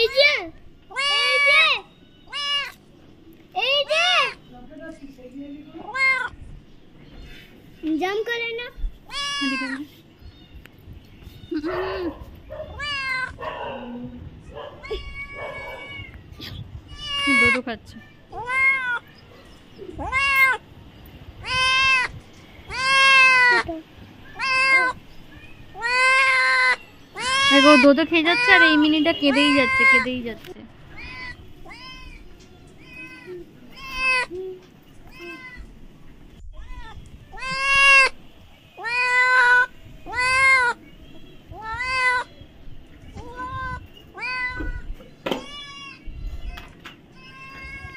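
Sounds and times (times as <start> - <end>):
cat meowing: 0.9 - 2.8, 5.8 - 6.4, 9.0 - 10.6, 11.2 - 13.4, 14.5 - 19.2, 19.9 - 20.6, 21.4 - 30.2, 30.8 - 34.4, 35.0 - 35.8, 36.4 - 38.2, 38.8 - 40.8, 41.5 - 42.3, 43.2 - 47.9.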